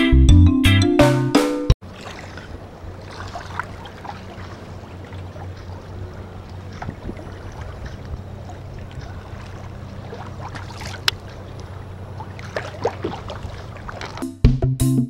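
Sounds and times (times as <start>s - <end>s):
steady low hum: 1.8s - 14.2s
small waves lapping and splashing: 1.8s - 14.4s.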